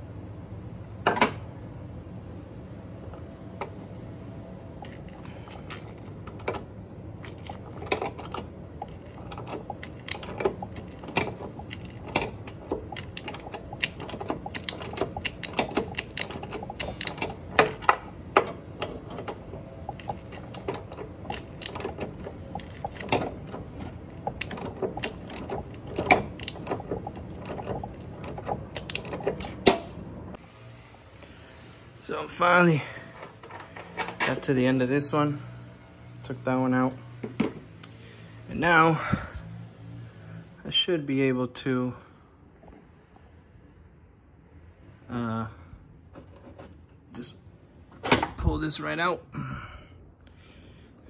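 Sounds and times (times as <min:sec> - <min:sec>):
loud metallic clicks: 0:04.8 - 0:30.1
ratchet wrench clicking: 0:07.2 - 0:30.0.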